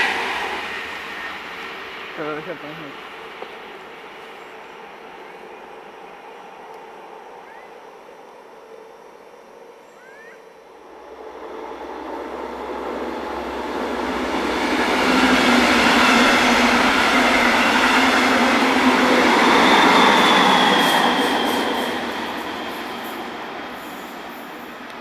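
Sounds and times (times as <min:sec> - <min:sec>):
train wheel and rail rush: 0:00.0 - 0:25.0
high wheel squeal: 0:19.1 - 0:24.5.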